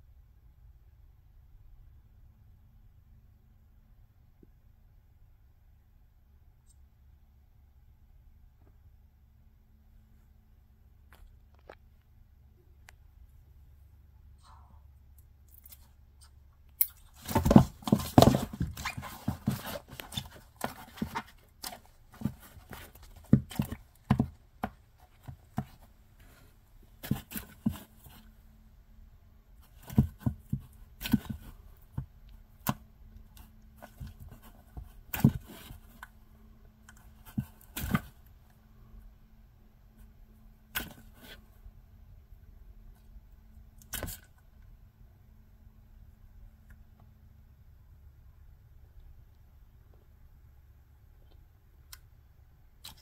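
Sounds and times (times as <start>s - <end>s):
frog crunching prey: 15.4s - 17.3s
rustling: 15.4s - 28.6s, 29.5s - 38.9s.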